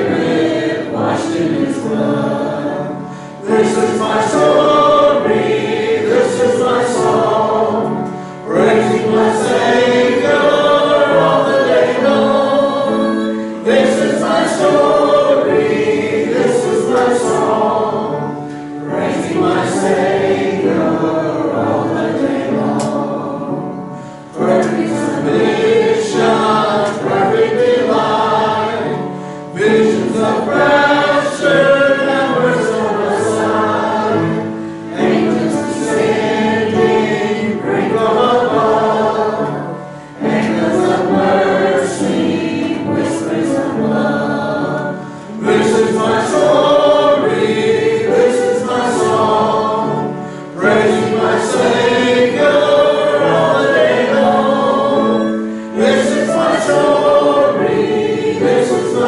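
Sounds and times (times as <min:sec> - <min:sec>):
congregation and choir singing hymn: 0:00.0 - 0:59.0.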